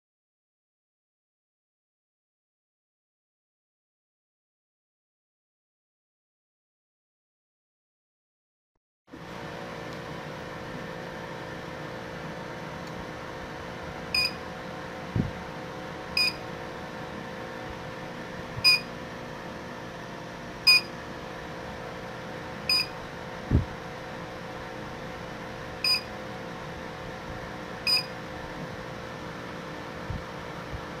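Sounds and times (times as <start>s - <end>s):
cooling fan and pump hum: 9.1s - 31.0s
short high alarm beeps: 14.2s - 14.4s, 16.2s - 16.4s, 18.6s - 18.9s, 20.7s - 20.9s, 22.7s - 22.9s, 25.8s - 26.1s, 27.9s - 28.1s.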